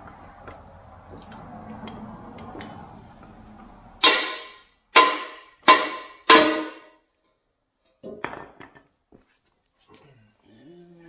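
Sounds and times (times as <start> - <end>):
hammer blows on metal pin: 4.0 - 7.0.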